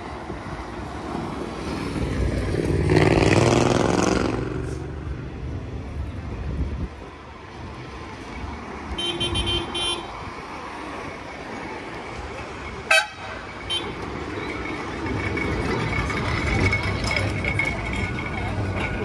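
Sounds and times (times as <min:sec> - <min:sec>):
tram going by: 0:00.0 - 0:19.0
tram horn toot: 0:08.9 - 0:10.2, 0:12.8 - 0:14.3.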